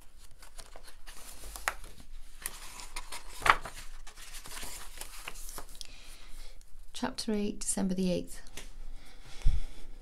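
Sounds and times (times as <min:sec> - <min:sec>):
book pages turning: 0:00.0 - 0:05.8
paper rustling and sliding: 0:00.2 - 0:05.8.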